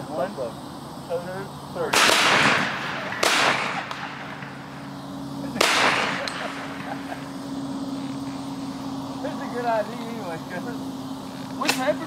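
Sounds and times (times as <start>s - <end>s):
shotgun shots echoing: 1.9s - 4.7s, 5.5s - 6.9s.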